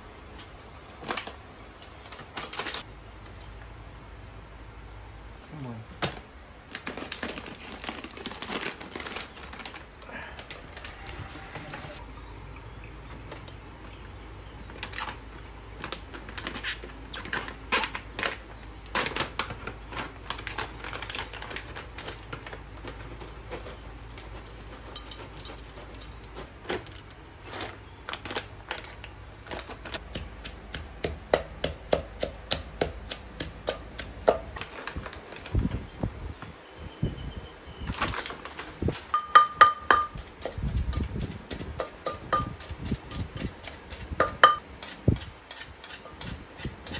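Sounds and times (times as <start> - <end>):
pestle pounding in a mortar: 30.0 - 34.7, 39.1 - 46.9.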